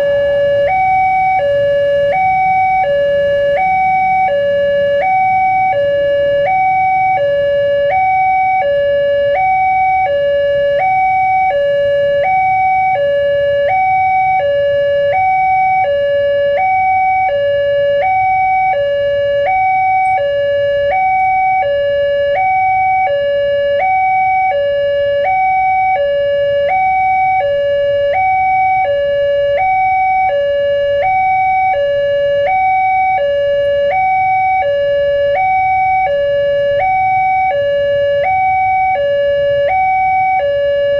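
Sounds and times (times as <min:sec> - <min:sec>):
level crossing two-tone alarm: 0:00.0 - 0:40.9.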